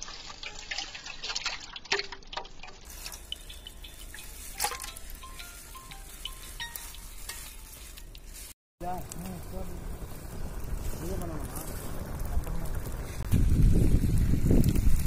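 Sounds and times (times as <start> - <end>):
blood pouring into metal pan: 0.0 - 6.2
dripping: 0.0 - 8.6.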